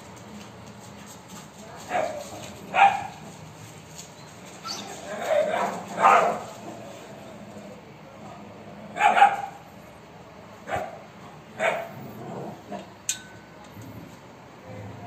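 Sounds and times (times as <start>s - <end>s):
dogs barking: 1.9s - 3.4s, 4.7s - 6.8s, 8.9s - 9.7s, 10.6s - 12.9s.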